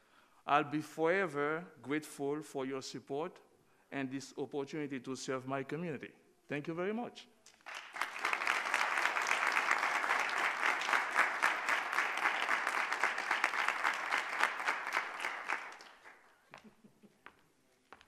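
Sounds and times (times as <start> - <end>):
audience applauding: 7.6 - 16.3.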